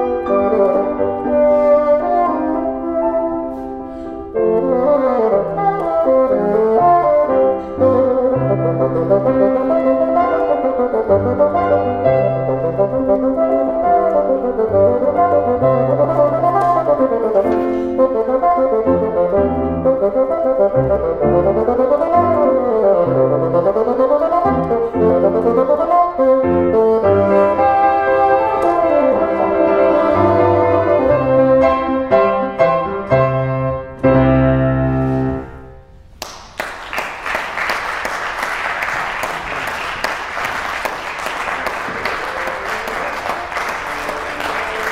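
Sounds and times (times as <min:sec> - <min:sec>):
bassoon with piano: 0:00.0 - 0:35.9
audience applause: 0:36.2 - 0:44.9.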